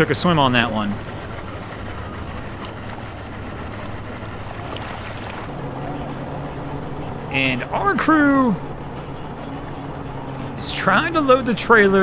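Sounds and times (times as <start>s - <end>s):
boat engine idling: 0.0s - 12.0s
water lapping: 0.2s - 7.2s.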